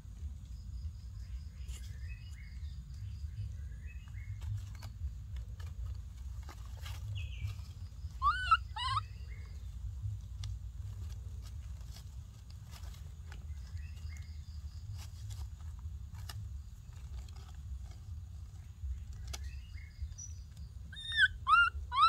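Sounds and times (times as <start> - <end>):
leaves rustling: 0.0 - 22.0
steady low rumble: 0.0 - 22.0
monkey high calls: 8.1 - 9.3, 20.9 - 22.0.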